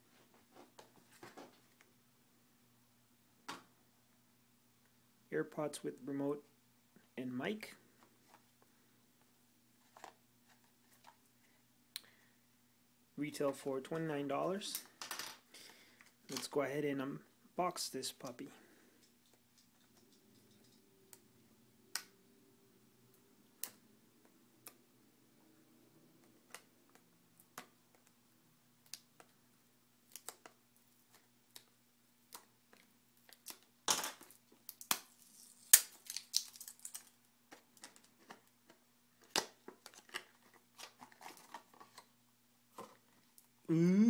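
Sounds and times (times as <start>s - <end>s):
plastic wrap crinkling: 34.2s - 38.4s.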